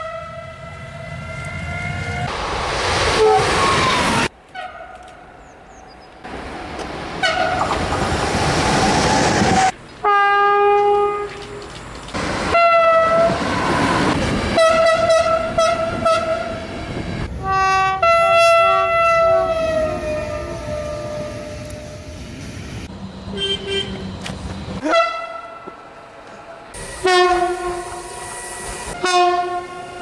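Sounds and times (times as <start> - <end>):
train horn blasts: 0.0 - 2.3, 10.0 - 11.4, 12.5 - 13.8, 14.6 - 16.6, 17.4 - 22.2, 23.3 - 24.0, 24.8 - 25.8, 27.0 - 28.2, 28.9 - 30.0
train rumble and wheel clatter: 0.0 - 30.0.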